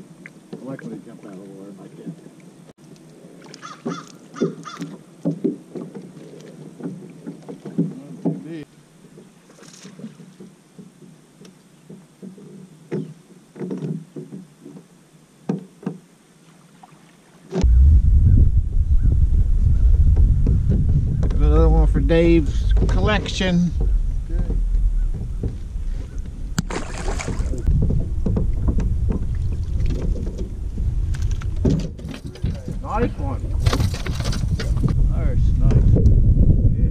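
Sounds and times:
wind: 0.0 - 36.9
water lapping against boat hull: 3.2 - 14.9, 19.9 - 35.0.

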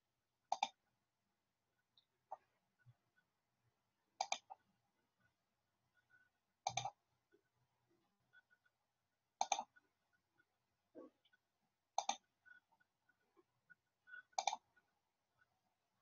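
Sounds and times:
faint sharp clicks: 4.2 - 4.6, 9.4 - 9.8, 12.0 - 12.2.

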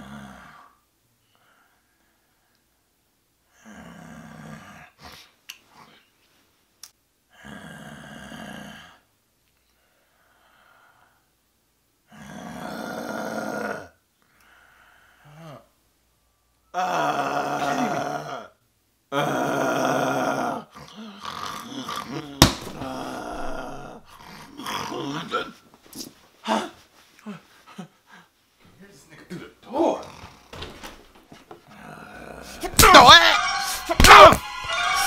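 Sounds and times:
quiet breaths: 0.0 - 6.7, 7.3 - 12.4, 14.1 - 15.8, 25.6 - 29.3
man snoring: 3.6 - 4.9, 7.4 - 9.0, 12.1 - 13.9, 16.8 - 18.5.

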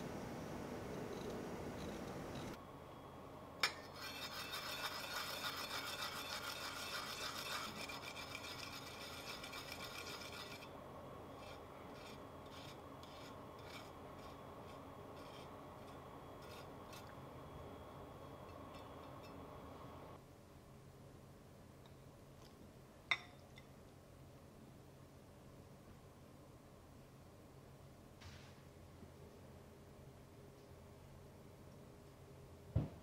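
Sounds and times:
ginger rasping on metal grater: 3.9 - 10.7, 11.4 - 17.1
skewer scraping grater teeth: 4.0 - 10.7.

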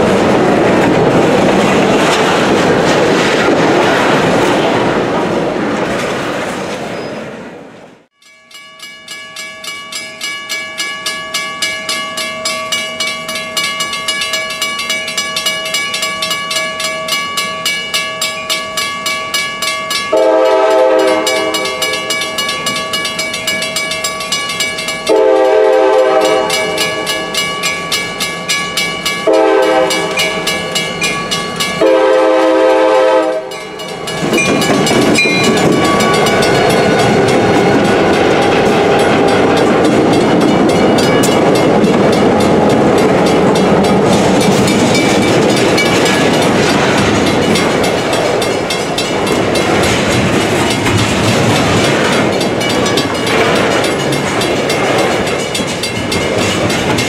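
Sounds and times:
freight cars rolling on rails: 0.0 - 8.1, 9.9 - 57.0
grade-crossing bell ringing: 8.1 - 57.0
diesel locomotive horn blasts: 20.1 - 22.1, 25.1 - 27.2, 29.3 - 30.4, 31.8 - 33.6.

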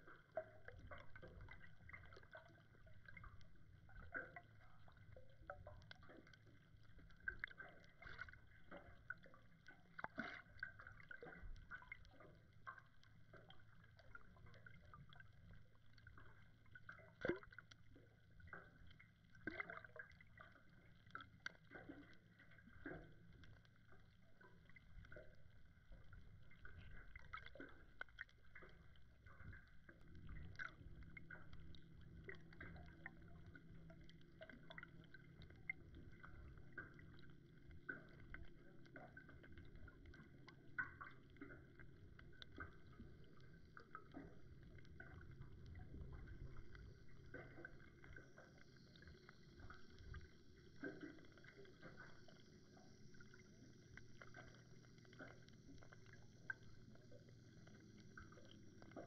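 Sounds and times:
low underwater hum: 0.0 - 59.0
small clicks and crackles: 0.0 - 59.0.

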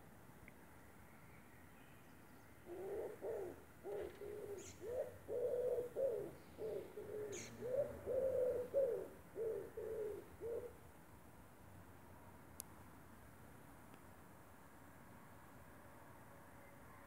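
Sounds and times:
pigeon cooing: 2.7 - 10.8.

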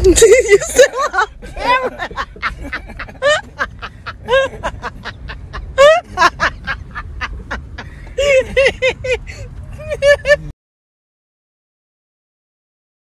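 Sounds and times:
car driving rumble: 0.0 - 10.5.

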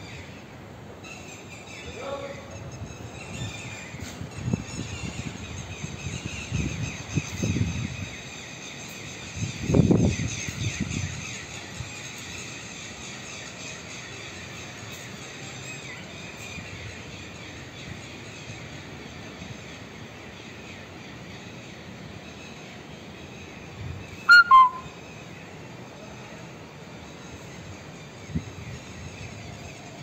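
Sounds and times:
outdoor background noise: 0.0 - 30.0
two-note bird call: 24.3 - 24.9.

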